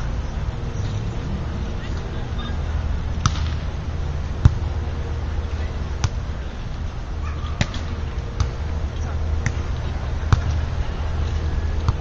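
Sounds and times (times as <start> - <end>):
steady low rumble: 0.0 - 12.0
volleyball being hit: 3.2 - 3.6, 4.4 - 4.6, 10.3 - 10.6.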